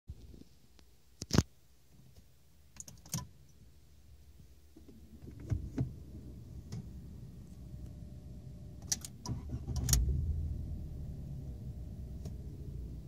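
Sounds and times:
faint low hum: 0.2 - 13.0.

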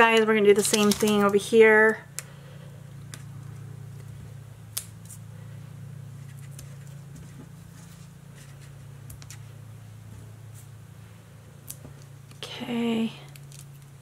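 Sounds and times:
cardstock ticks and rustles: 0.0 - 1.4
steady low hum: 0.0 - 14.0.

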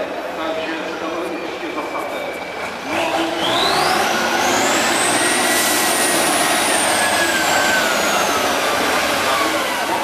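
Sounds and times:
truck diesel engine under load: 2.3 - 10.0.

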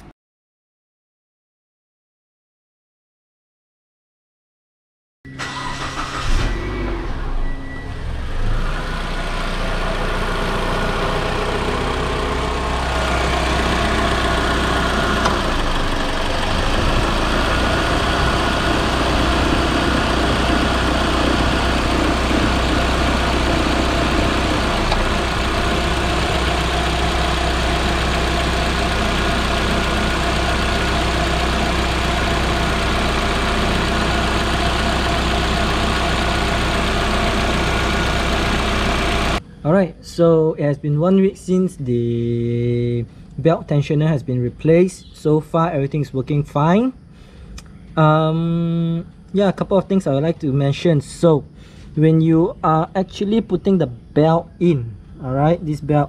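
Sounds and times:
car engine idling: 8.1 - 39.6.

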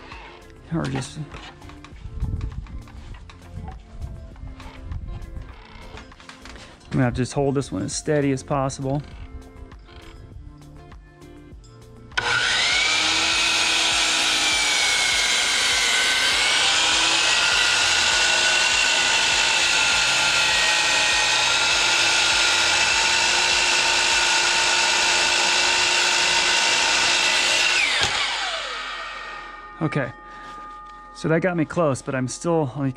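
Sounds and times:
miter saw cutting wood: 0.0 - 1.8, 12.2 - 30.7.

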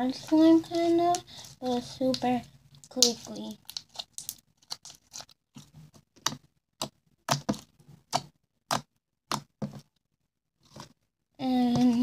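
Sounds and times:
slime popping and clicking: 2.8 - 5.0.

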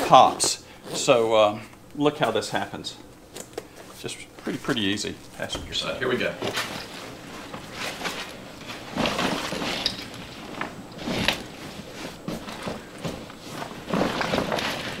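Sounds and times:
fabric pet carrier rustling: 6.3 - 15.0.

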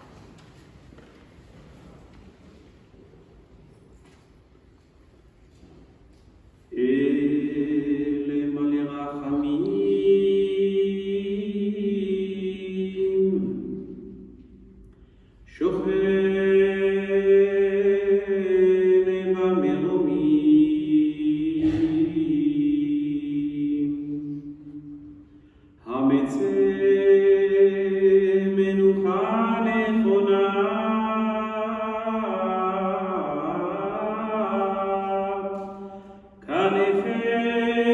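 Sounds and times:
man chanting a prayer: 6.8 - 13.6, 36.4 - 37.9.

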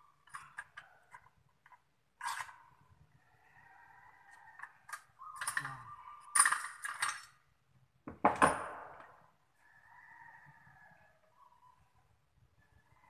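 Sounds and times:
metal tools clinking on pipe: 5.4 - 7.4.

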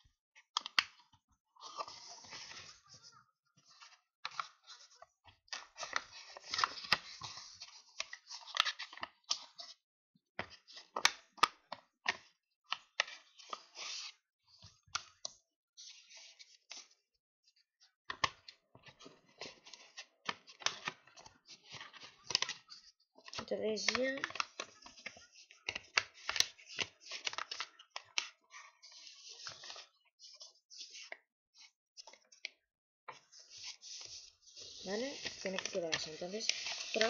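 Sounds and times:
paper envelope crinkling: 33.1 - 37.0.

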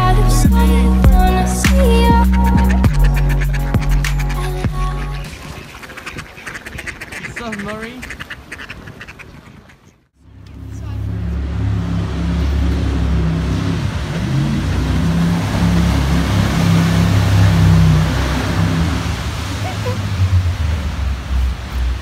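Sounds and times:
jet boat engine: 0.0 - 5.9, 10.1 - 22.0
ducks quacking: 1.2 - 10.1
rushing water jet and river: 1.7 - 8.5, 10.3 - 22.0.

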